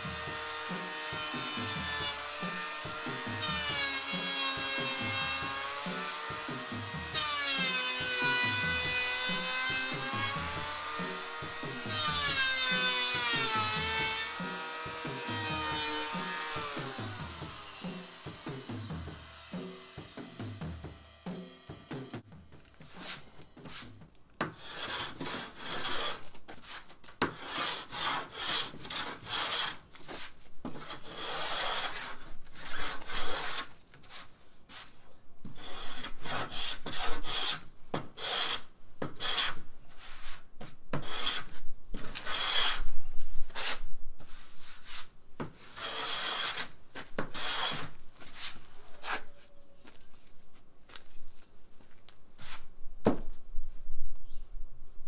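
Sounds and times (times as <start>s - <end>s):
hand plane shaving wood: 22.8s - 23.9s, 24.5s - 35.0s, 38.2s - 38.6s, 39.2s - 40.4s, 43.6s - 49.3s.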